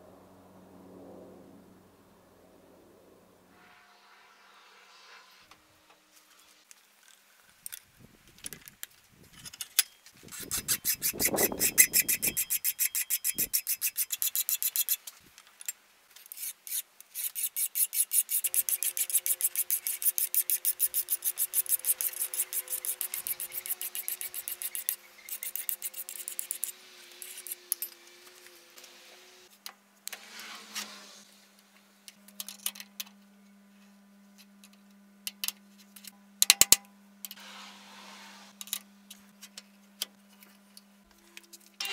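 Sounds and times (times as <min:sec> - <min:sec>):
hand file rasping on steel: 0:10.3 - 0:15.0, 0:16.3 - 0:27.8.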